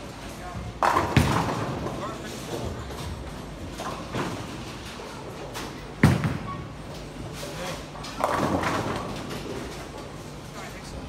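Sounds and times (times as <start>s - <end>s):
bowling ball thudding and rolling: 0.7s - 4.7s, 5.8s - 6.7s, 8.2s - 9.8s
bowling pins crashing: 0.8s - 2.0s, 8.2s - 9.4s.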